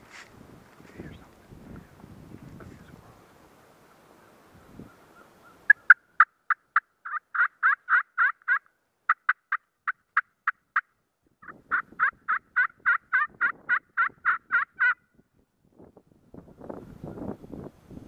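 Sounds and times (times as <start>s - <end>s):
turkey yelping: 4.9s - 15.0s.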